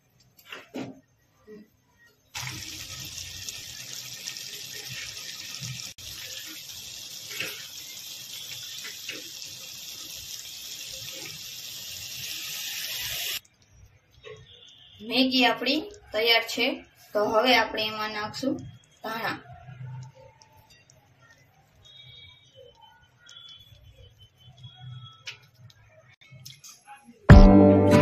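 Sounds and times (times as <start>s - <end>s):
noodles boiling with a hiss: 0.0s - 26.2s
spatula stirring in a pan: 2.4s - 14.9s.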